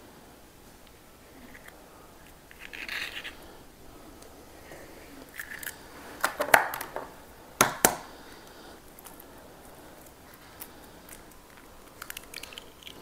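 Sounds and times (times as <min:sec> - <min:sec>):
eggshells clicking and tapping: 0:05.2 - 0:08.1, 0:08.9 - 0:13.0.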